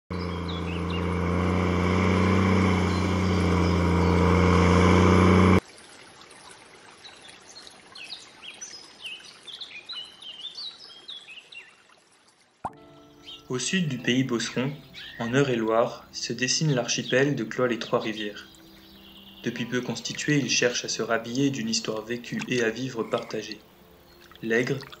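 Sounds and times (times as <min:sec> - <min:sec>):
small birds chirping: 0:00.1 - 0:04.9, 0:06.4 - 0:11.9, 0:12.7 - 0:25.0
combine harvester engine drone: 0:00.1 - 0:05.6.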